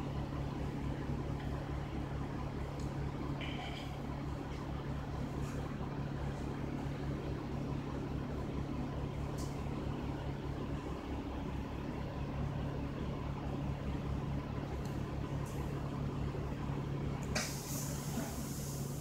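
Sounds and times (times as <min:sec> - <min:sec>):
diesel bus engine idling: 0:00.0 - 0:03.4, 0:04.0 - 0:19.0
brief high hiss: 0:17.3 - 0:19.0.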